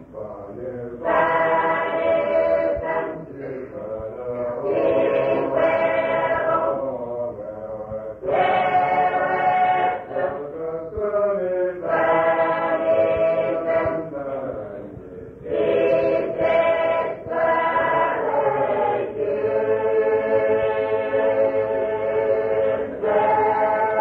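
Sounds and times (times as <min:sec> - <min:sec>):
group of voices singing: 0:00.0 - 0:24.0
singers breathing: 0:15.0 - 0:15.4.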